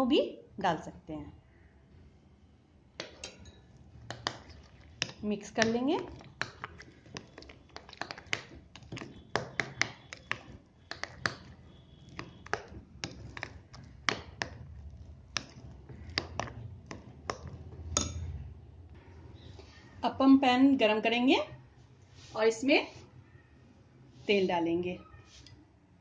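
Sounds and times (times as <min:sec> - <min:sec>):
spoon tapping against a bowl: 0:03.0 - 0:06.8, 0:07.8 - 0:11.6, 0:15.4 - 0:18.3.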